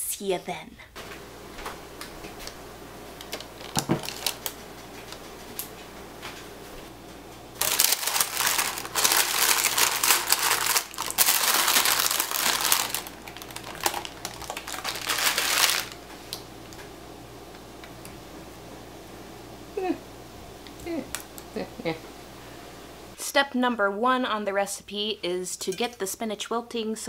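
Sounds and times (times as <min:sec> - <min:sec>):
dried beans rattling: 0:03.2 - 0:04.5, 0:07.6 - 0:16.0
parchment paper crinkling: 0:03.2 - 0:05.2, 0:07.6 - 0:16.0.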